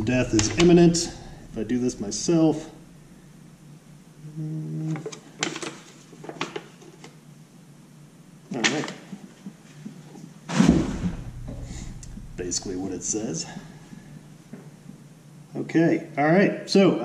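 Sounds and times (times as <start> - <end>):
man humming: 4.2 - 5.1.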